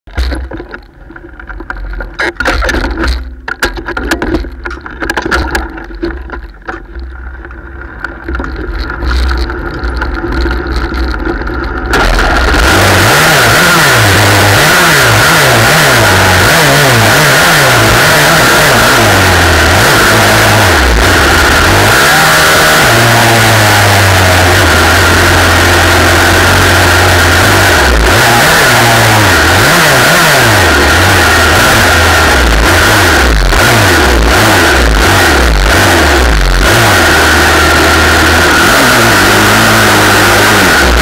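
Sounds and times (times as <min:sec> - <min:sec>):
low rumble: 0:00.1 - 0:13.0
knocks and clatter: 0:00.1 - 0:16.0
racing engine revving: 0:08.8 - 0:41.0.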